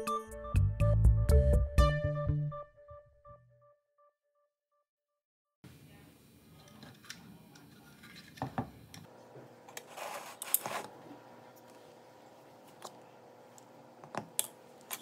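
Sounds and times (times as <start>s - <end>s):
short scrape and rustle: 9.8s - 10.9s.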